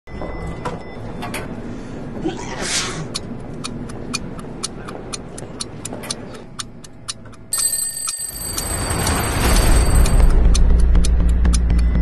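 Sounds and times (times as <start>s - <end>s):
clock-like ticking: 3.1s - 12.0s
high ringing tone: 7.5s - 10.6s.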